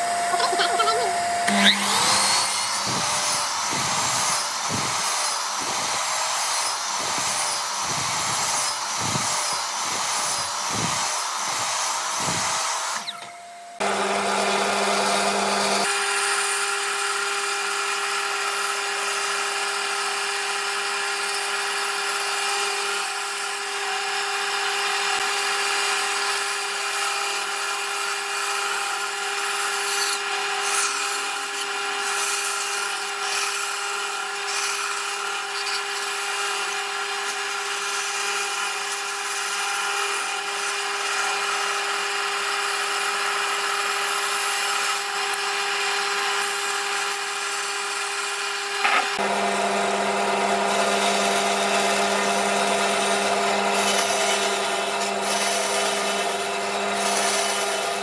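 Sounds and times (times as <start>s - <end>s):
bandsaw cutting wood: 0.0s - 58.0s.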